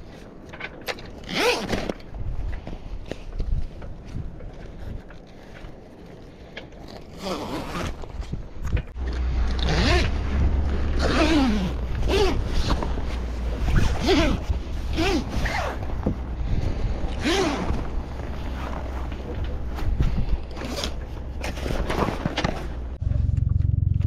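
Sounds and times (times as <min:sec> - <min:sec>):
zipper being unzipped: 0:01.2 - 0:01.9, 0:06.8 - 0:08.2, 0:09.6 - 0:16.5, 0:17.1 - 0:19.9.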